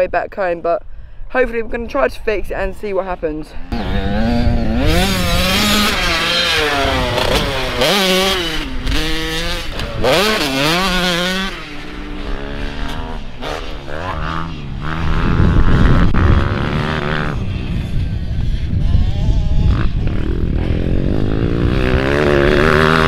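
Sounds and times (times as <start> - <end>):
motocross bike engine revving: 3.6 - 23.0.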